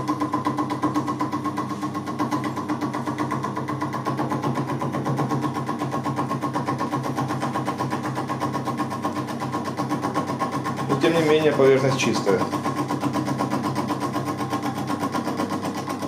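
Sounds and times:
milling machine motor hum: 0.0s - 16.0s.

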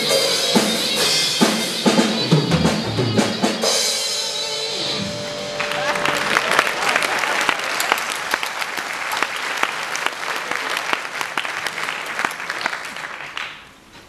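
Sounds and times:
audience applauding: 5.4s - 13.9s.

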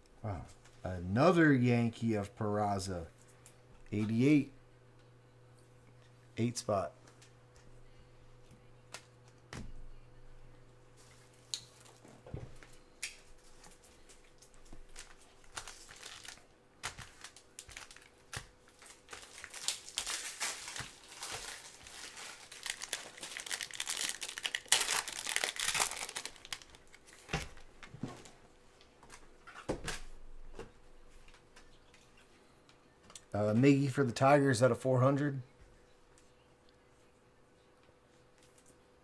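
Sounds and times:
foil wrapper crinkling and tearing: 13.0s - 27.7s.

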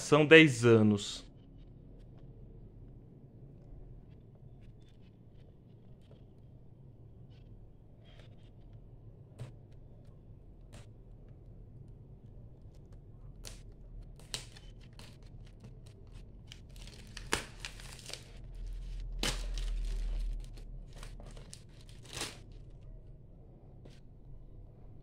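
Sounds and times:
low rumble of handling: 1.3s - 25.0s
plastic wrap crackling: 12.8s - 22.9s.

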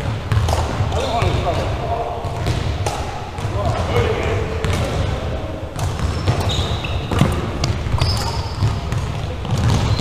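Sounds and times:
sneaker squeaks on wooden floor: 6.0s - 10.0s.

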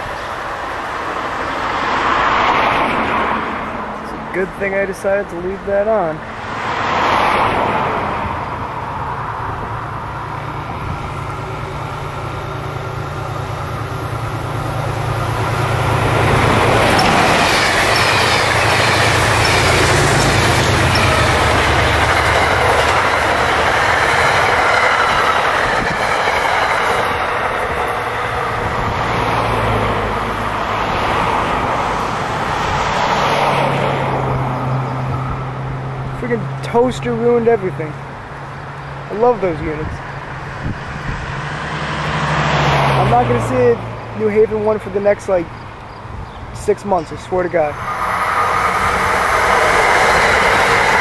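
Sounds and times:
trains passing: 0.0s - 51.0s
wheels clicking over rail joints: 11.9s - 29.3s, 44.3s - 51.0s.

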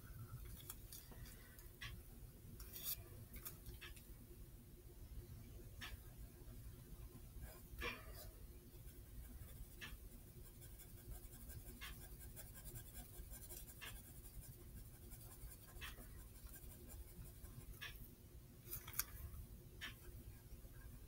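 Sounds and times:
pencil scratching on paper: 8.9s - 18.0s.

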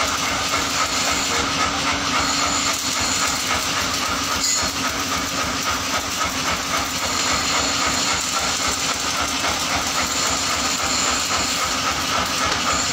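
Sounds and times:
grinding wheel grinding metal: 0.0s - 12.9s.

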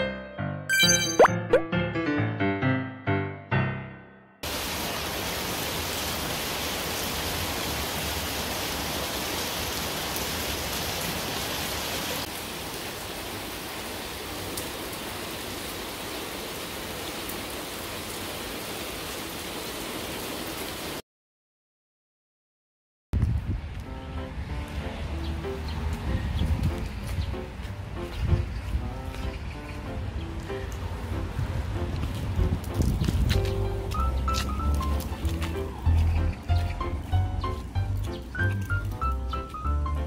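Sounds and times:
heavy rain falling: 4.4s - 21.0s, 30.0s - 40.0s.

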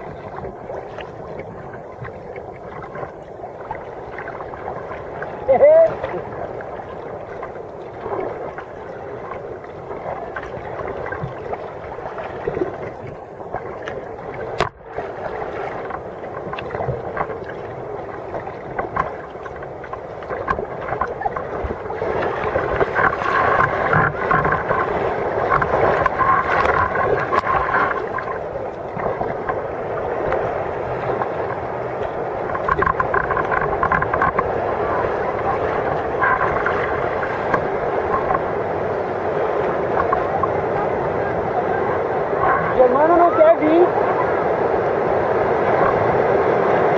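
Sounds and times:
breaking surf: 0.0s - 46.9s
water splashing against kayak hull: 0.0s - 46.9s.

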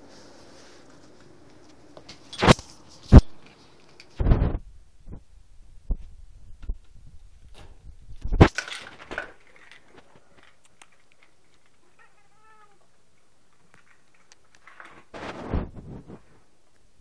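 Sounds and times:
cat meowing: 11.8s - 12.9s.

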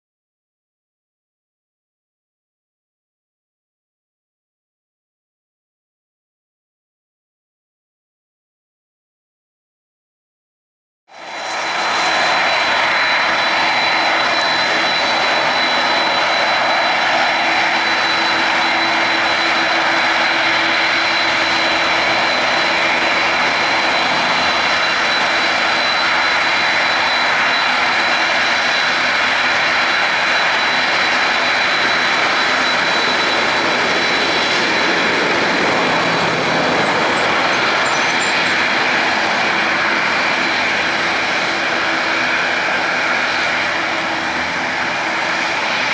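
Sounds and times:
high jet whine: 11.1s - 45.9s
jet engine roar: 11.1s - 45.9s.

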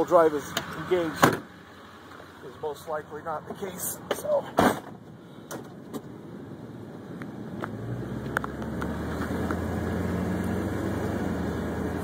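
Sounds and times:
tow truck engine running: 0.0s - 7.7s.

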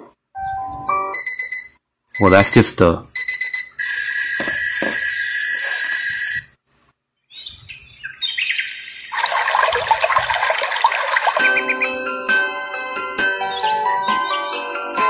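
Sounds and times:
recorded birdsong chirping: 0.4s - 1.3s, 6.6s - 9.2s, 13.4s - 14.8s
short electronic beeps: 0.4s - 3.7s.

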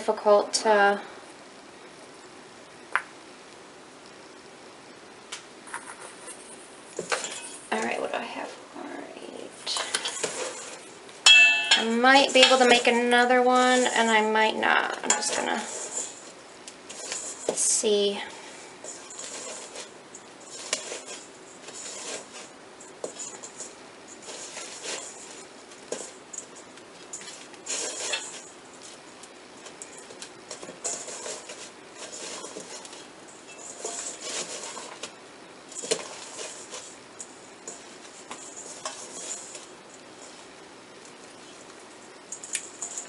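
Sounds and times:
hands scraping mixture in bowl: 9.7s - 11.0s, 11.8s - 40.5s.

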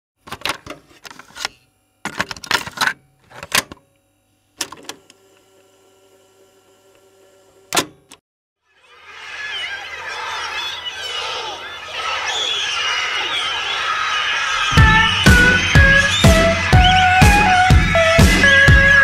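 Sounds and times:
faint multi-tone hum: 0.2s - 8.2s.

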